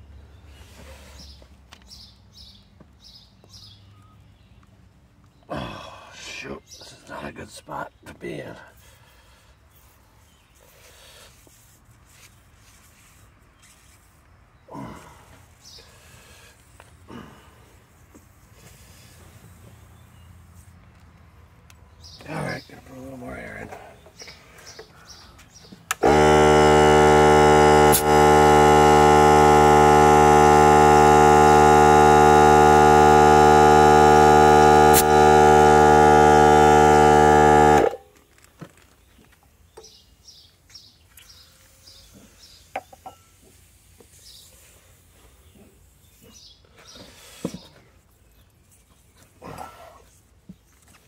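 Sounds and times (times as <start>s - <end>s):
air compressor running: 25.9s - 38.1s.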